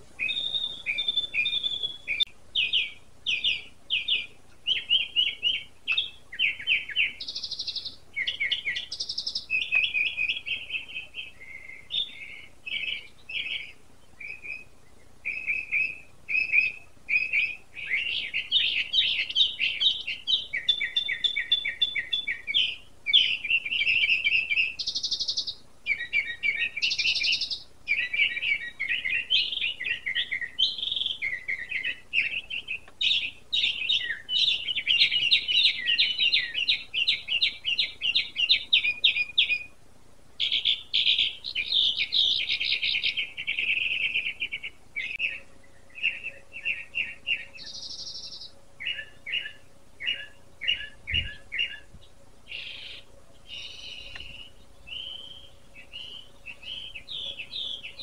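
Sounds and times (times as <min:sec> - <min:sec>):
songbird trilling: 0:00.0 - 0:39.7, 0:40.4 - 0:58.0.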